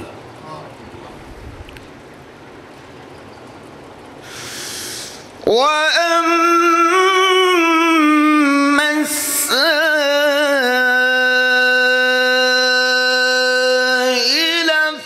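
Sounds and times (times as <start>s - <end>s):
man breathing in: 4.2s - 5.3s
man reciting melodically: 5.4s - 15.0s.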